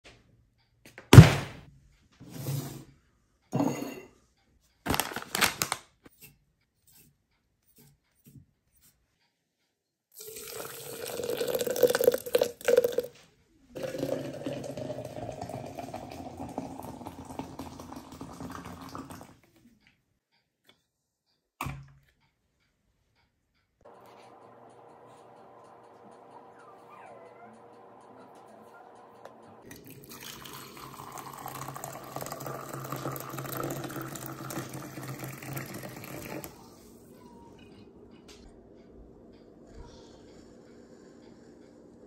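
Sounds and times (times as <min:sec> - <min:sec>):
water pouring into glass press: 0:10.2 - 0:13.1, 0:13.8 - 0:19.3, 0:29.6 - 0:36.6.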